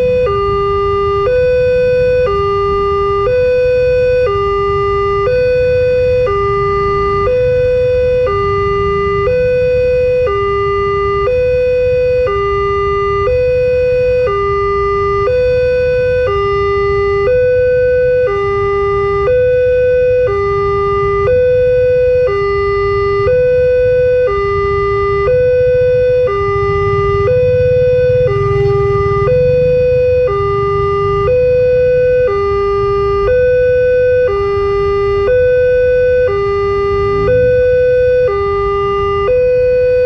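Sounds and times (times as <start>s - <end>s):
level crossing two-tone alarm: 0.0s - 40.0s.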